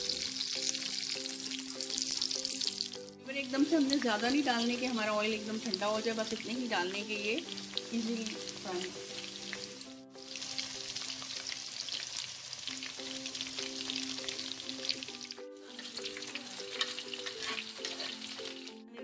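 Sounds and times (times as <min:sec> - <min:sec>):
batter deep-frying in hot oil: 0:00.0 - 0:18.8
soft background music: 0:00.0 - 0:19.0.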